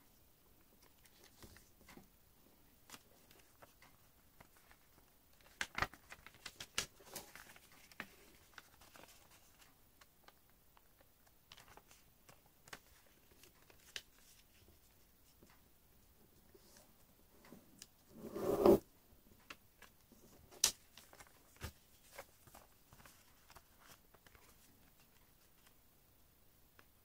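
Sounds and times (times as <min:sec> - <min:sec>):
paper rustling and crinkling: 0:02.8 - 0:15.1, 0:20.6 - 0:25.8
paper crackling: 0:02.9 - 0:14.7.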